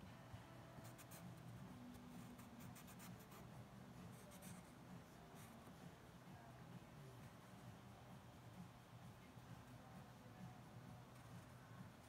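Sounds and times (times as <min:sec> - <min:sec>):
marker scratching on cardboard: 0:02.2 - 0:03.5.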